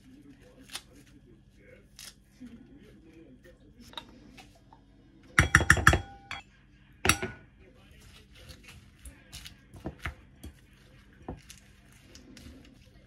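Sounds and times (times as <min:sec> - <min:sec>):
spoon clinking ceramic bowl: 0:05.4 - 0:06.4
salad rustling in bowl: 0:07.8 - 0:13.0.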